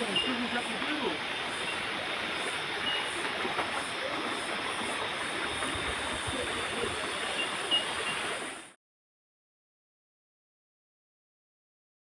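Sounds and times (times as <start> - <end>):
river water rushing: 0.0 - 8.8.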